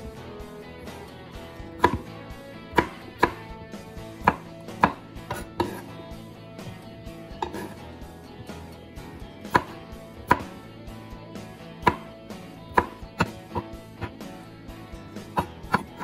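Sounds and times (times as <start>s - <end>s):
knife knocking on wooden board: 1.8s - 2.0s, 4.2s - 5.9s, 7.4s - 7.8s, 9.5s - 10.5s, 11.8s - 12.1s, 12.7s - 14.2s, 15.4s - 16.0s.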